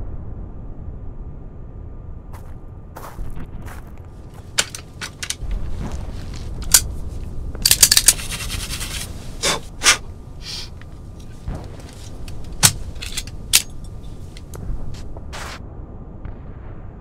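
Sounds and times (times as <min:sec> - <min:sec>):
metal gun parts clicking: 0:04.4 - 0:09.1, 0:10.6 - 0:14.7.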